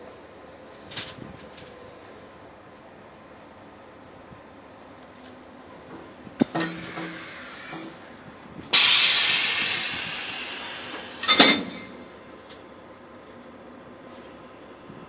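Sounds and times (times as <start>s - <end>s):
sharp metallic clank: 6.5s - 7.9s, 8.8s - 12.0s
train air brakes hissing: 6.5s - 12.1s.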